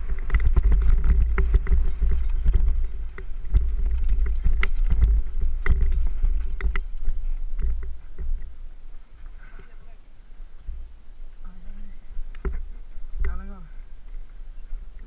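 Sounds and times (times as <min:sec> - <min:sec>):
bike clattering over ground: 0:00.0 - 0:08.5
wind rumble on microphone: 0:00.0 - 0:15.0.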